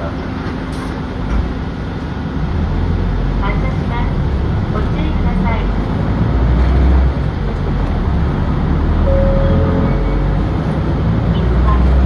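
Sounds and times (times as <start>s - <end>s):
bus diesel engine drone: 0.0s - 12.0s
road noise: 0.0s - 12.0s
brief steady whine: 9.1s - 10.3s.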